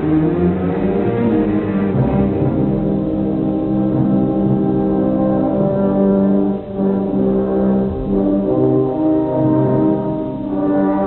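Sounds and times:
orchestral brass music: 0:00.0 - 0:11.0.

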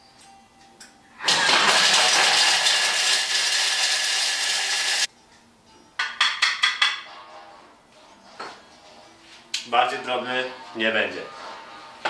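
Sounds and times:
food processor motor grinding cheese: 0:01.2 - 0:05.1.

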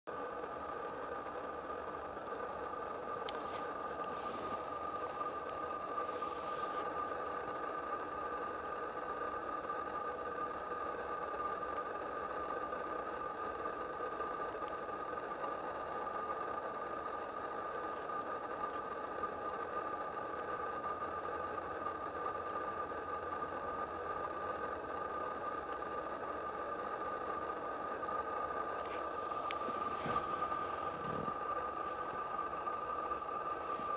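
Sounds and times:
machine hum: 0:00.1 - 0:16.2, 0:25.3 - 0:33.9.

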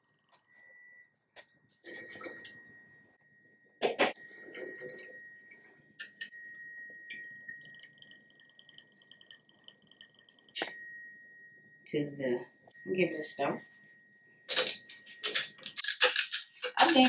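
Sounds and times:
liquid trickling and dripping: 0:04.2 - 0:06.4, 0:07.0 - 0:10.8
metal clinking on glass: 0:14.5 - 0:17.0.

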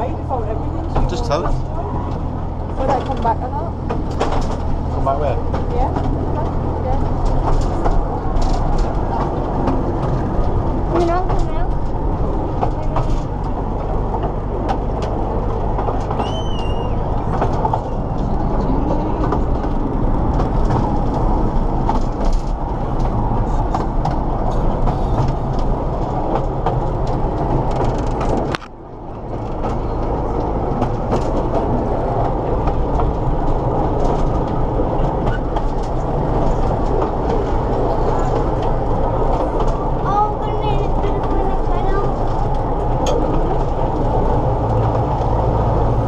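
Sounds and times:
small train rumbling and rattling: 0:00.0 - 0:46.0.

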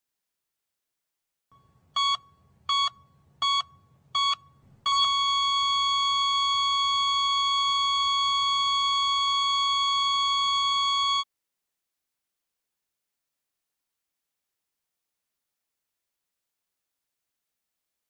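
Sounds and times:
heart monitor beeps: 0:01.6 - 0:11.3.

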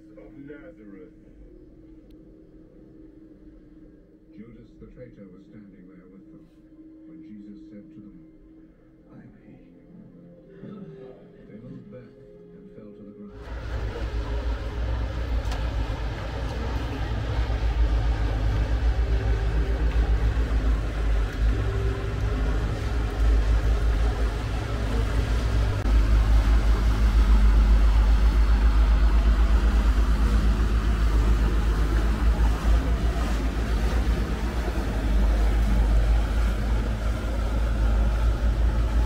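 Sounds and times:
boat engine rumbling: 0:13.4 - 0:39.0.

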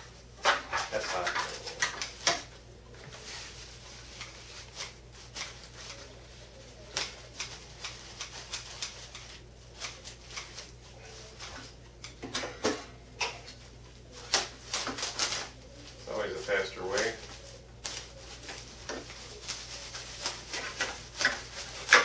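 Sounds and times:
plastic bag crinkling and tearing: 0:14.0 - 0:22.0.

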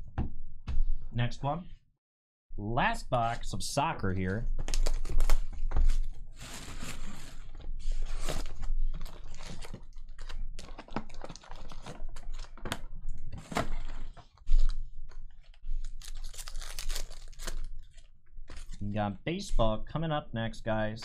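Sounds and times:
foil packs crinkling and rustling: 0:04.6 - 0:18.9
foil wrapper tearing: 0:09.0 - 0:12.6, 0:15.9 - 0:18.8.

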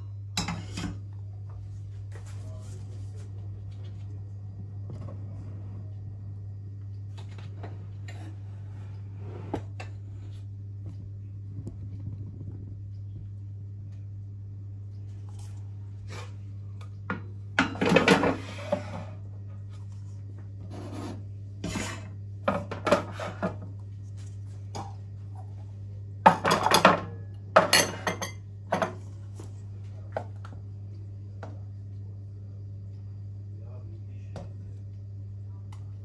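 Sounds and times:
steady low hum: 0:00.0 - 0:36.0
bowls clattering on metal: 0:17.1 - 0:19.1, 0:26.3 - 0:29.1.

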